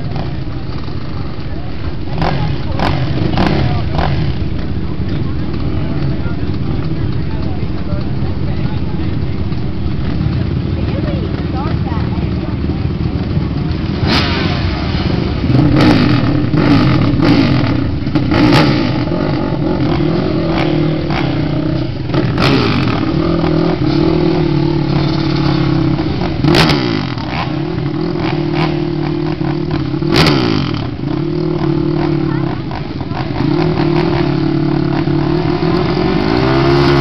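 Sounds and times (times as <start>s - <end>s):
atv engines idling and revving: 0.0s - 37.0s.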